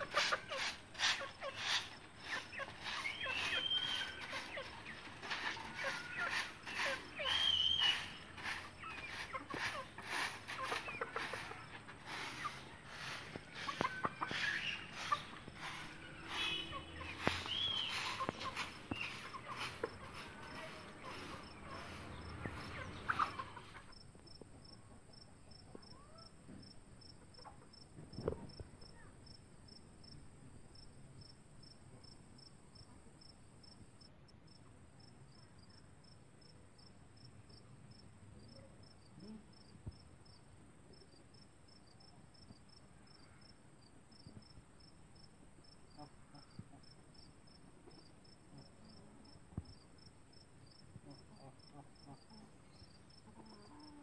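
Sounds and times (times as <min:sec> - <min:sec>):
chickens clucking: 0:00.0 - 0:25.9, 0:27.1 - 0:28.6, 0:50.9 - 0:54.0
cricket chirping: 0:00.1 - 0:54.0.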